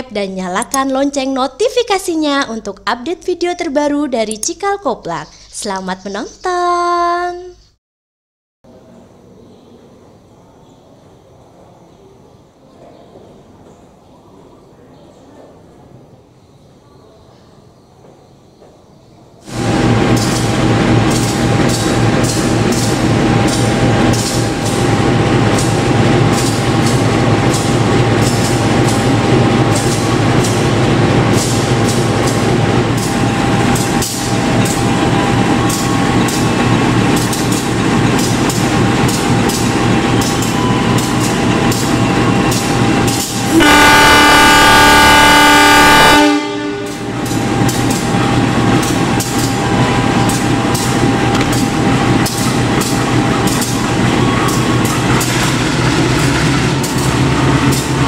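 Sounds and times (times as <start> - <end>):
train horn blast: 43.4 - 47.3.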